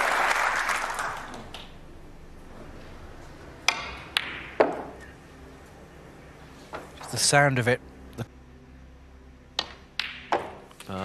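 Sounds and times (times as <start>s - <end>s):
applause: 0.0s - 1.7s
snooker balls clicking: 3.6s - 5.1s, 9.6s - 10.9s
ball knocking into pocket: 9.6s - 10.7s.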